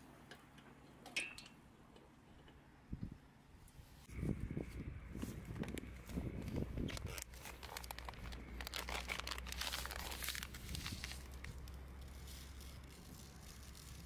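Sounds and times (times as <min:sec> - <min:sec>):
fried food crackling: 0:07.0 - 0:14.0.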